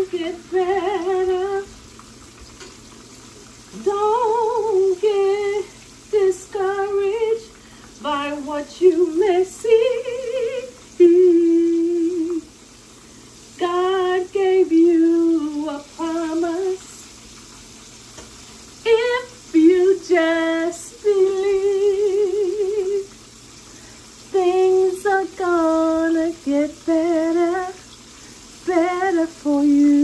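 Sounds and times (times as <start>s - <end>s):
woman singing gospel: 0.0s - 1.8s, 3.7s - 12.5s, 13.6s - 17.0s, 18.8s - 23.1s, 24.3s - 27.9s, 28.6s - 30.0s
fish sizzling in oil: 0.0s - 30.0s.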